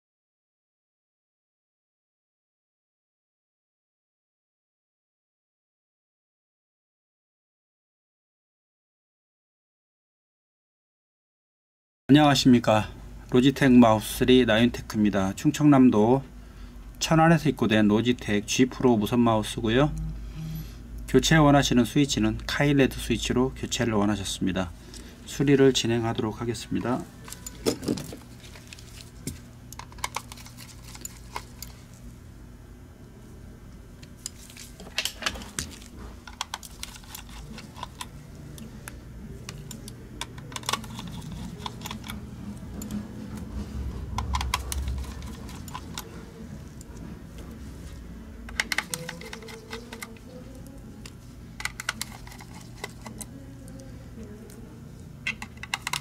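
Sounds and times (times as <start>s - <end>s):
small screwdriver undoing screws: 48.5s - 50.2s.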